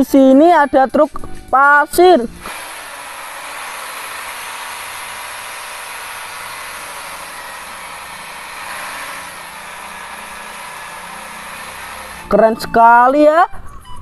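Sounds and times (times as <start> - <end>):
diesel engine running: 2.3 - 12.5.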